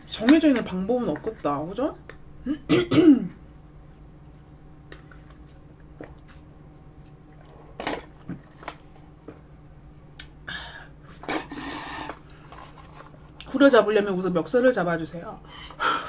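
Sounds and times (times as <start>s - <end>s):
faint steady hum: 0.0s - 16.0s
mouth clicks and smacks: 10.2s - 10.4s.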